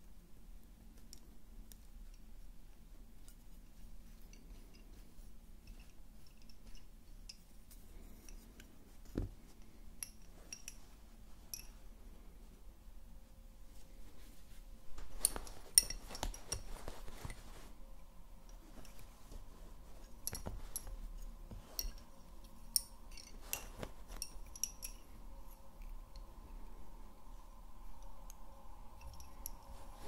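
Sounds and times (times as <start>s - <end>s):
soft thump: 9.1s - 9.4s.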